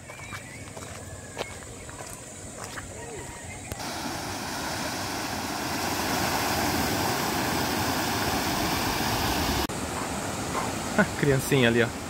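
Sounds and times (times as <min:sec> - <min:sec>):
water rushing over weir: 0:03.7 - 0:12.0.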